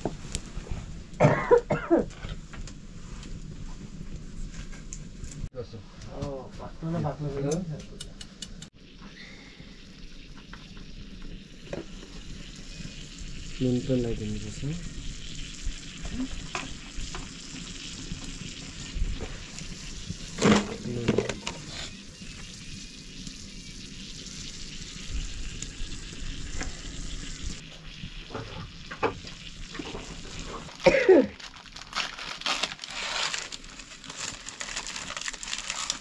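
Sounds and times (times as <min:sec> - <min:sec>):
oil sizzling in a wok: 0:08.8 - 0:36.0.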